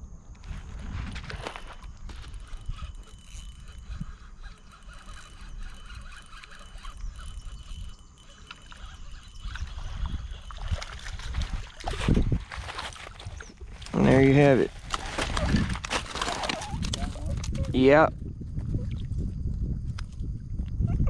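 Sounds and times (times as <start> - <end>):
fishing reel clicking: 1.3 - 11.9.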